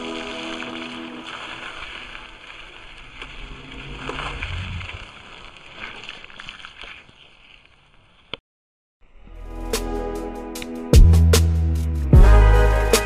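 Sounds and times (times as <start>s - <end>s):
bike tyres rolling on asphalt: 0.0s - 8.4s.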